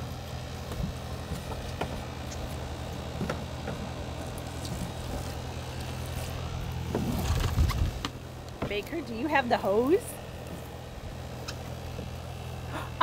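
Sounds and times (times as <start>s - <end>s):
air conditioner hum: 0.0s - 13.0s.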